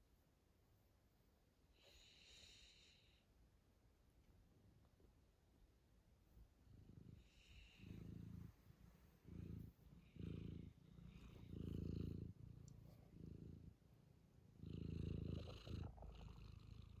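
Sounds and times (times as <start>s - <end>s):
cat purring: 6.3s - 17.0s.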